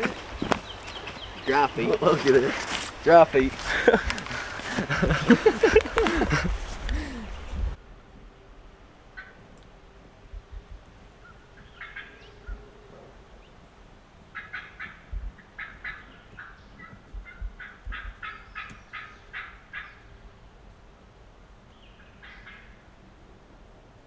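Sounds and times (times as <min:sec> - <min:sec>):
wild turkey yelping: 0:11.2 - 0:13.0, 0:14.3 - 0:20.1, 0:22.0 - 0:22.8.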